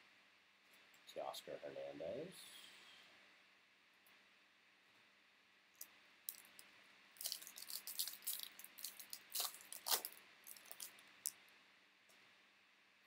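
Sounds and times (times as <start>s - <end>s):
plastic wrapper crinkling: 6.3s - 6.6s, 7.2s - 11.4s.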